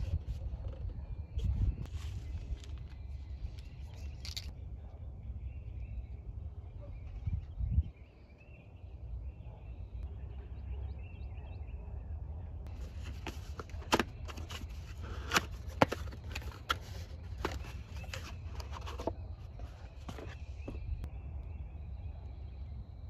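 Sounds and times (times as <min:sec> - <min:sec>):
faint birds chirping: 0:00.0 - 0:23.0
plastic and cardboard rustling: 0:12.7 - 0:21.0.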